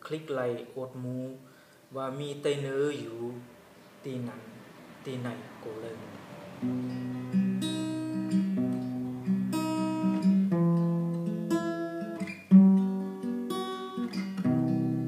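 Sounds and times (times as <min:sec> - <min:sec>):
acoustic guitar strumming: 0:03.0 - 0:15.0.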